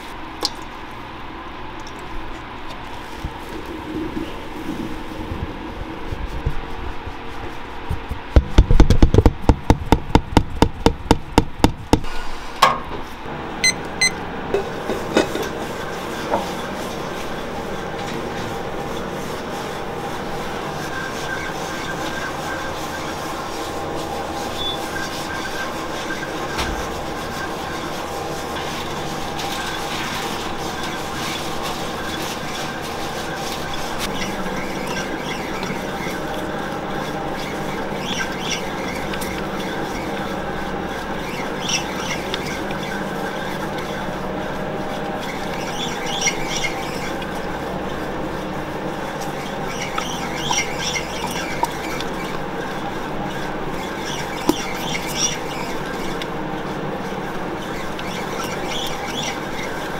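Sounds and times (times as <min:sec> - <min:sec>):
dough mixer running: 0:13.3 - 0:59.9.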